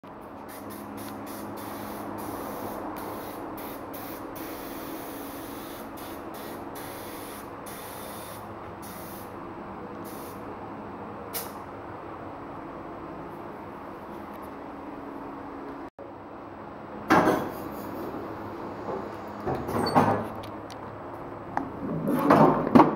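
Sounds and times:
compressed air hissing: 0.4s - 9.4s, 10.0s - 10.4s, 11.3s - 11.6s.

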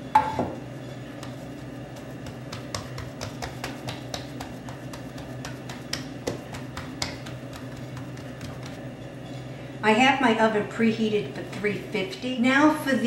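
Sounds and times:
low room hum: 0.0s - 13.0s
hands patting dough: 0.7s - 8.9s.

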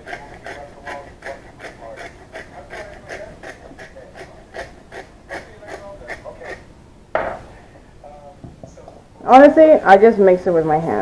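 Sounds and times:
loud knock: 7.1s - 7.5s.

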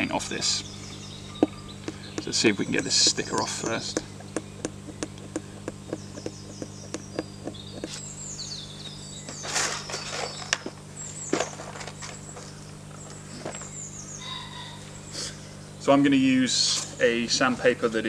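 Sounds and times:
birds chirping: 0.0s - 18.0s
fingernail ticking on sticker: 1.9s - 8.0s.

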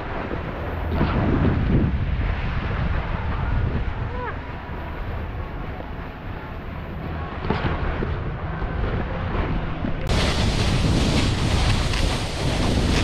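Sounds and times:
wind buffeting microphone: 0.0s - 13.0s
snowboard scraping over snow: 8.6s - 13.0s.

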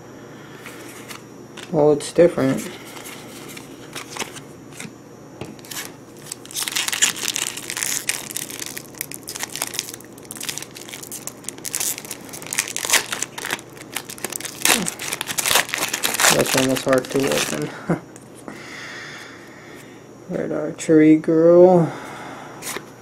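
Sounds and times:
foil wrapper crinkling and tearing: 3.3s - 4.9s, 5.6s - 17.7s.

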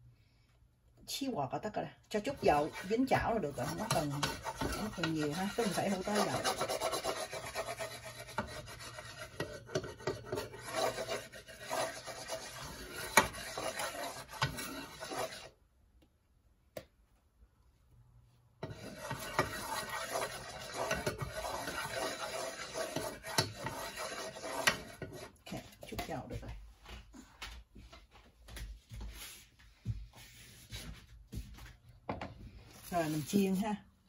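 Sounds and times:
scraping in a frying pan: 2.1s - 15.6s, 18.6s - 26.3s, 32.8s - 33.7s
utensil knocking on pan: 3.6s - 6.9s.

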